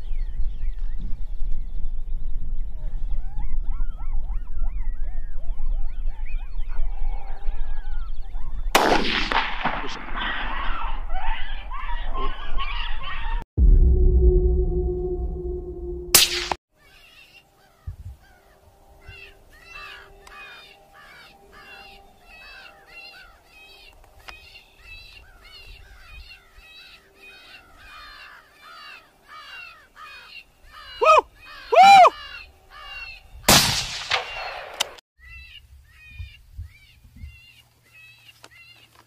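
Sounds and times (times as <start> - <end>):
rifle shots: 8.8 - 10.4, 33.5 - 35.0
harsh cawing calls: 16.9 - 33.2.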